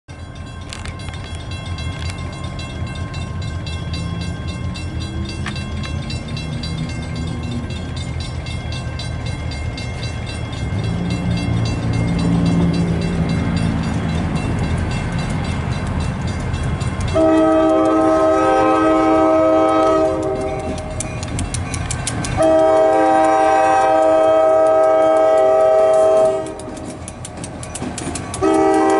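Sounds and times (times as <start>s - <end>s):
locomotive engines rumbling: 0.1s - 28.9s
multi-chime locomotive horn: 16.6s - 21.3s, 22.2s - 27.0s, 28.3s - 28.9s.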